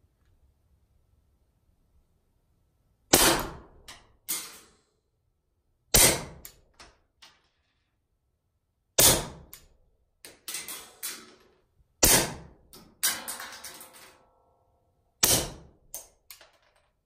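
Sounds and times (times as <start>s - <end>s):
suppressed pistol shots: 3.1s - 3.8s, 5.9s - 6.6s, 12.0s - 12.6s, 15.2s - 15.7s.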